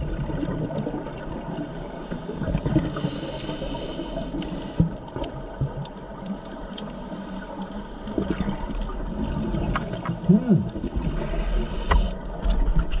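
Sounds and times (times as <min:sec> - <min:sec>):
exhaled bubbles gurgling: 0:00.0 - 0:13.0
diver breathing through regulator: 0:02.0 - 0:05.0, 0:11.1 - 0:12.2.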